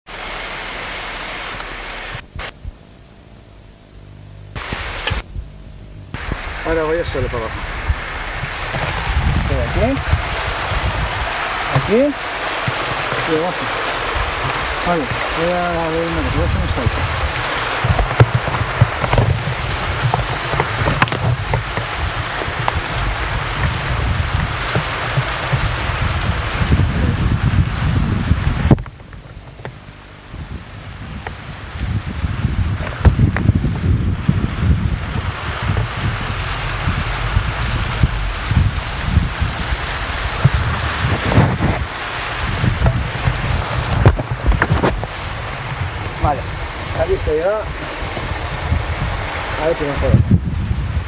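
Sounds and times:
low mains hum: 0:00.1 - 0:49.3
tape hiss: 0:00.1 - 0:51.0
rush of noise with knocks: 0:04.6 - 0:05.5, 0:06.1 - 0:29.8, 0:31.2 - 0:51.0.

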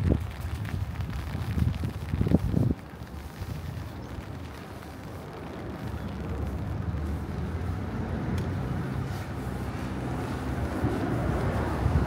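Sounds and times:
vehicle engine humming: 0:02.8 - 0:12.0.

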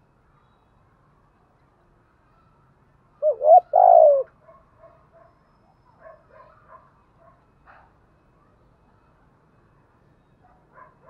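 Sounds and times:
dove cooing: 0:03.2 - 0:04.3.

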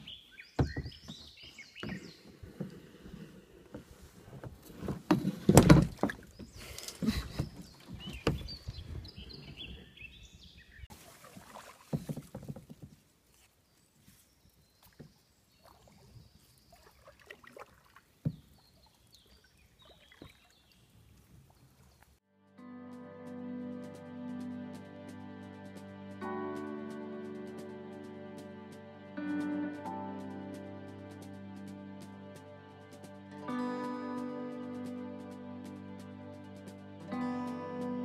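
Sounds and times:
paddle knocking on kayak hull: 0:00.0 - 0:02.8, 0:11.3 - 0:13.0
paddle splashing in water: 0:00.0 - 0:09.9, 0:10.9 - 0:13.5, 0:14.8 - 0:22.2.

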